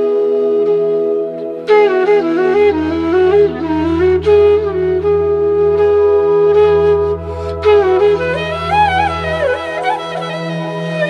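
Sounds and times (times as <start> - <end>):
flute melody: 0.0 - 11.0
steady drone: 1.3 - 11.0
low bass note: 2.0 - 11.0.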